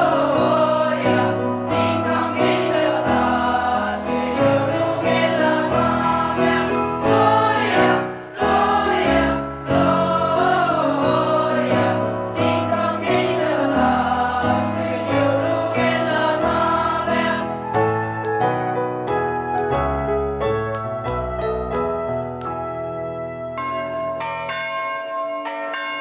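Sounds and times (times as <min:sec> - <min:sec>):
boys' choir singing: 0:00.0 - 0:17.7.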